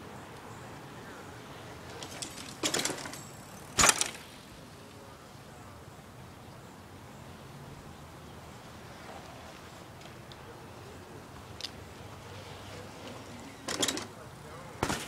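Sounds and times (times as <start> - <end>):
bicycle rattling: 1.8 - 4.5, 12.4 - 14.2, 14.8 - 15.0
loud clattering impact: 3.8 - 4.2.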